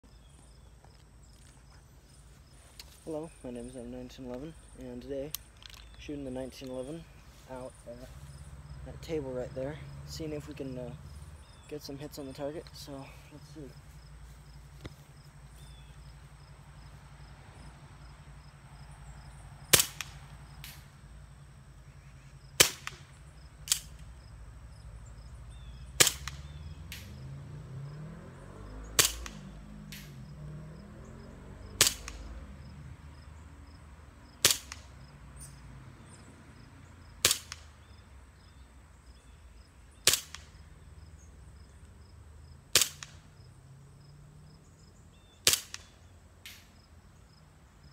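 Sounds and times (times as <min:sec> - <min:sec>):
pistol shots: 0:19.7 - 0:20.9, 0:22.6 - 0:24.0, 0:26.0 - 0:27.2, 0:28.9 - 0:30.2, 0:31.8 - 0:32.3, 0:34.4 - 0:34.9, 0:37.2 - 0:37.8, 0:40.0 - 0:40.6, 0:42.7 - 0:43.2, 0:45.4 - 0:46.7
fainter echo crack: 0:19.7 - 0:21.0, 0:22.6 - 0:24.1, 0:26.0 - 0:27.2, 0:29.0 - 0:30.2, 0:31.8 - 0:32.4, 0:34.4 - 0:35.0, 0:37.2 - 0:37.9, 0:45.4 - 0:46.8.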